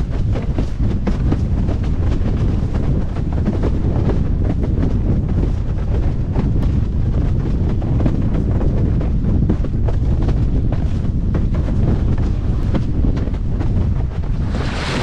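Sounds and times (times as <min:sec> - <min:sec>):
wind buffeting microphone: 0:00.0 - 0:15.0
rushing water: 0:14.4 - 0:15.0.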